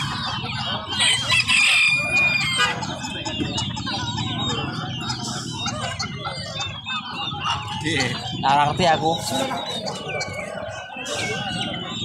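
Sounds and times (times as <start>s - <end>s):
chickens clucking: 0.0s - 12.0s
rooster crowing: 1.0s - 2.8s.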